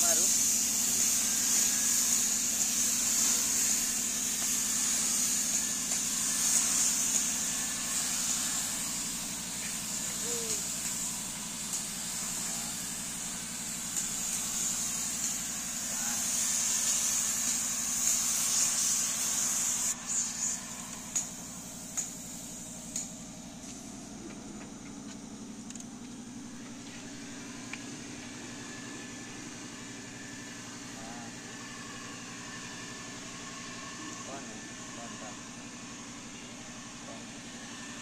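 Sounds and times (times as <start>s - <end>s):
paint spray gun hissing: 0.0s - 38.0s.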